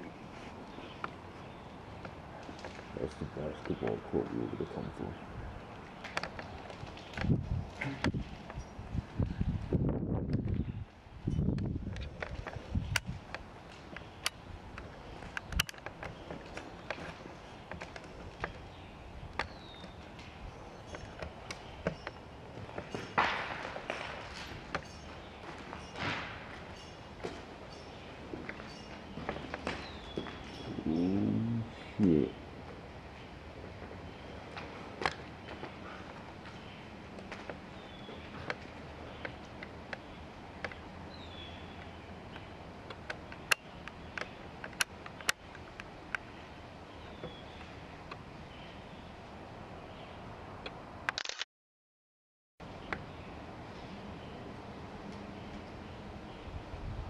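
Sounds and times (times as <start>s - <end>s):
steady low background noise: 0.0s - 51.1s, 52.6s - 57.0s
sharp clicks and ticks: 11.5s - 16.2s.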